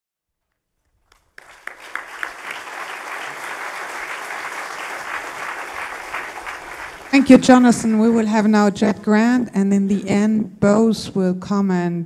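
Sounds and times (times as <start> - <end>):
audience applauding: 1.0 - 8.4.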